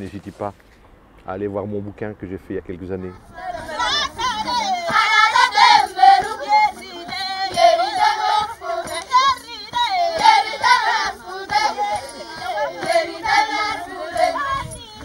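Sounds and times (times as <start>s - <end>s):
group of voices singing: 3.2s - 15.0s.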